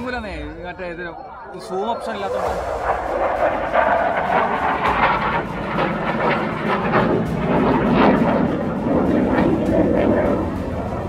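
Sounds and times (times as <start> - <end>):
jet aircraft flying overhead: 0.0 - 11.0.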